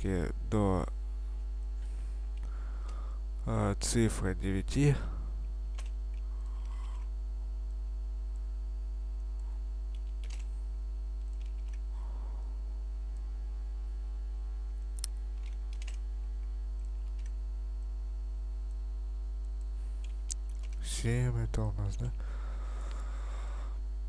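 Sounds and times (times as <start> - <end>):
electrical mains hum: 0.0 - 24.0
keyboard and mouse clicks: 5.7 - 7.1, 9.9 - 10.5, 11.2 - 11.8, 15.0 - 16.0, 16.8 - 17.4.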